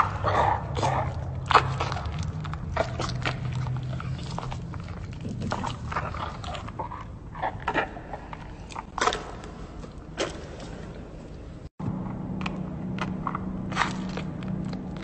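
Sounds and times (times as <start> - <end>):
hippopotamus chewing wetly: 0.0 - 11.6.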